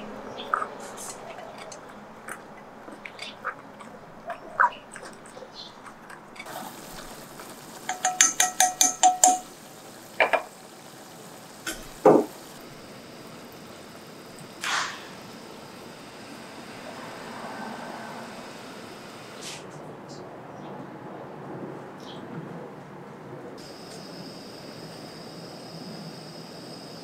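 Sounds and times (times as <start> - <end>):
dishes and utensils clinking: 0.5 - 9.6
ringing clinks: 7.9 - 9.5
loud knocks: 11.7 - 12.4.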